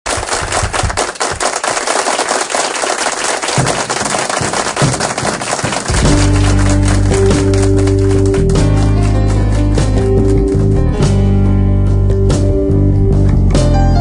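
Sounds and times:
applause clapping: 0:00.0 - 0:11.2
band with guitar and bass chords: 0:05.9 - 0:14.0.

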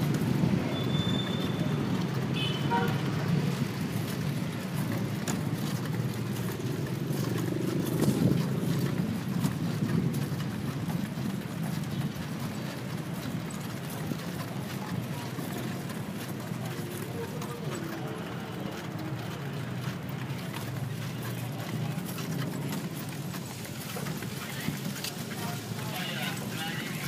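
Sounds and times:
vehicle rumbling: 0:00.0 - 0:27.0.

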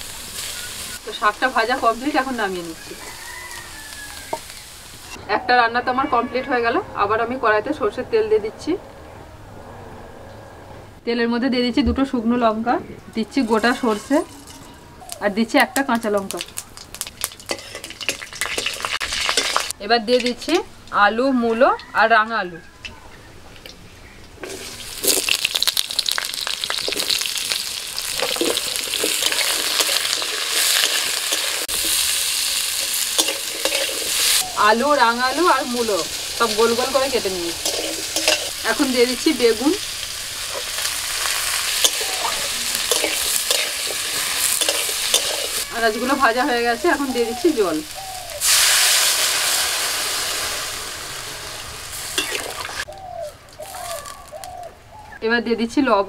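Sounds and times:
vegetables sizzling in hot oil: 0:00.0 - 0:05.2, 0:15.8 - 0:20.6, 0:24.4 - 0:52.9
metal spatula stirring in wok: 0:17.4 - 0:19.7, 0:28.1 - 0:34.4, 0:36.0 - 0:39.0, 0:39.8 - 0:46.4.

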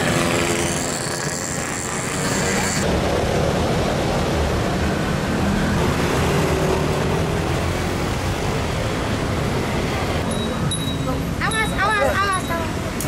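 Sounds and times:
cars and motorbikes passing: 0:00.0 - 0:13.0.

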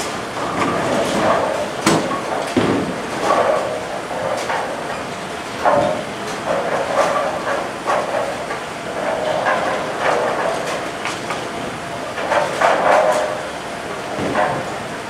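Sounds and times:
bowling balls rumbling down lanes: 0:00.0 - 0:15.0
bowling pins clattering: 0:00.0 - 0:15.0.

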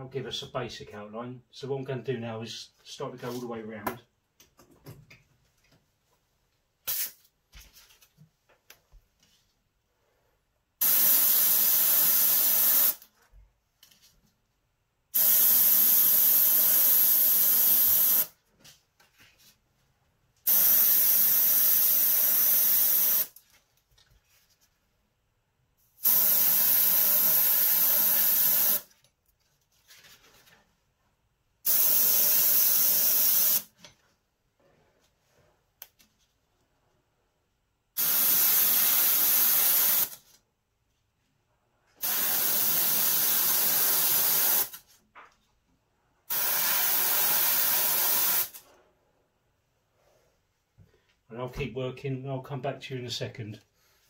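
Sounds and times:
airbrush spraying hiss: 0:06.9 - 0:07.2, 0:10.8 - 0:13.0, 0:15.2 - 0:18.3, 0:20.5 - 0:23.3, 0:26.0 - 0:28.9, 0:31.7 - 0:33.7, 0:38.0 - 0:40.2, 0:42.0 - 0:44.8, 0:46.3 - 0:48.6.

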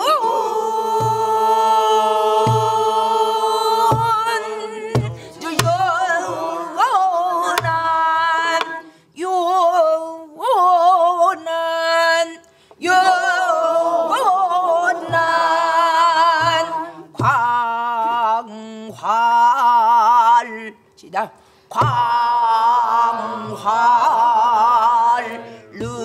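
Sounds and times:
person singing with vibrato: 0:00.0 - 0:26.0
barrel drum strokes: 0:03.8 - 0:06.8, 0:07.5 - 0:08.7.

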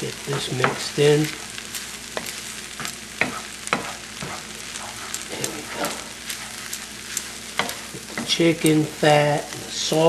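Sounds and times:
grain sizzling in a skillet: 0:00.0 - 0:10.0
wooden spatula scraping a pan: 0:02.1 - 0:09.0.

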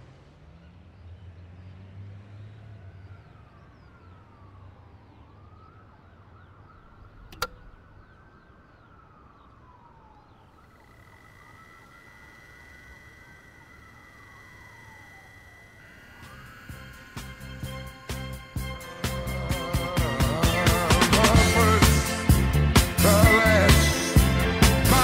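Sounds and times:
low traffic rumble: 0:00.0 - 0:25.0
distant siren wailing: 0:02.5 - 0:25.0
faint high chirps: 0:06.4 - 0:18.8
sharp click: 0:07.0 - 0:07.8
high electronic tone: 0:10.7 - 0:22.2.

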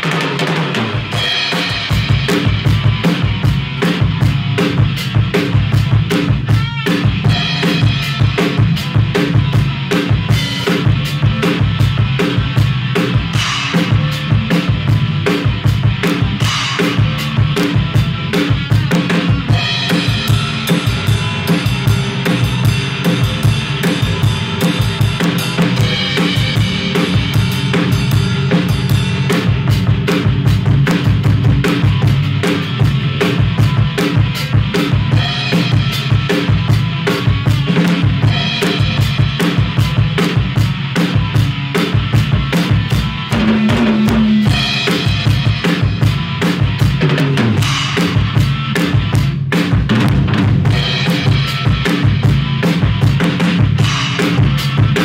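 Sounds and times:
drum kit groove: 0:00.0 - 0:55.0
cymbals washing: 0:16.2 - 0:41.7, 0:42.5 - 0:47.0.

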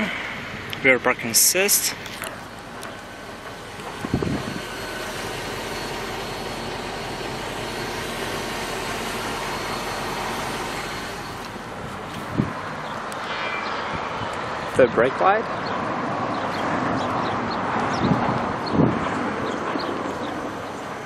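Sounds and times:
car engine idling: 0:00.0 - 0:13.3.

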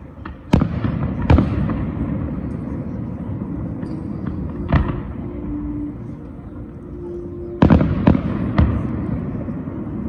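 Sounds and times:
fireworks bangs: 0:00.2 - 0:05.4, 0:07.6 - 0:10.0.

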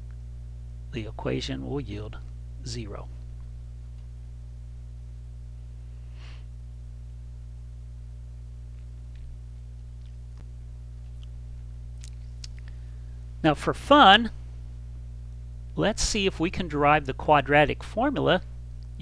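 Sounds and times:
low electrical hum: 0:00.0 - 0:19.0
faint breath: 0:05.8 - 0:06.5, 0:12.6 - 0:13.3.

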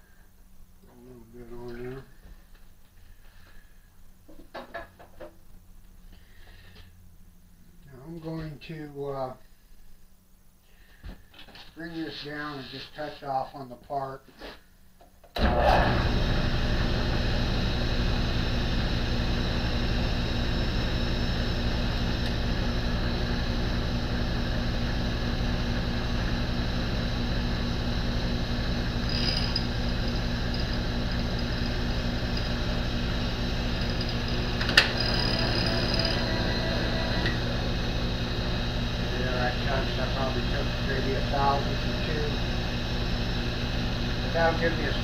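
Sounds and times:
spindle motor running: 0:15.4 - 0:45.0
faint high whine: 0:26.4 - 0:42.6.

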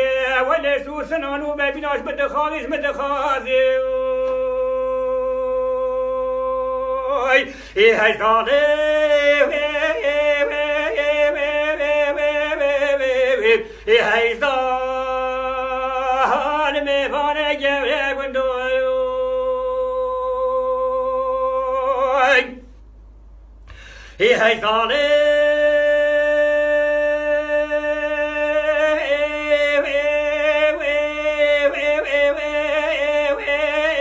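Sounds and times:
man singing unaccompanied: 0:00.0 - 0:22.7, 0:24.2 - 0:34.0
singer breathing: 0:07.4 - 0:07.8, 0:13.6 - 0:13.9, 0:23.6 - 0:24.2.

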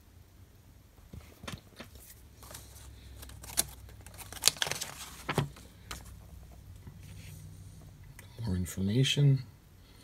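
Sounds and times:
paper pages crinkling and rustling: 0:01.1 - 0:07.4.

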